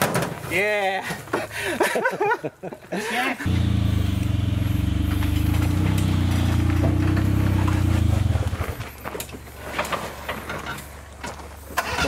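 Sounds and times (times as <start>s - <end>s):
car engine running at low revs: 3.5s - 9.0s.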